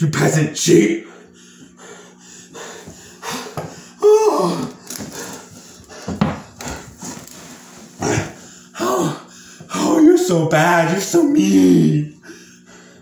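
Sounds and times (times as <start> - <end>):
man grunting: 4.0 - 4.8, 8.0 - 10.3, 11.1 - 12.2
man's wordless cry: 4.0 - 4.8, 8.0 - 12.2.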